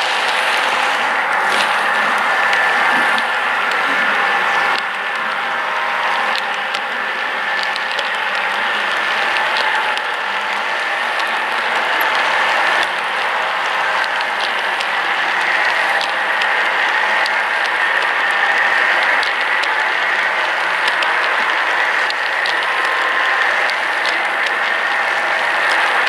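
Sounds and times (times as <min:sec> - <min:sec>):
sharp clicks from wheels: 0:06.0 - 0:26.0
model train wheels rattling: 0:06.1 - 0:26.0.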